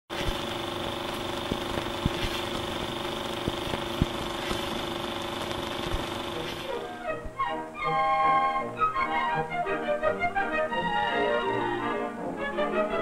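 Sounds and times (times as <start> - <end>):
machine running hum: 0.1 - 7.4.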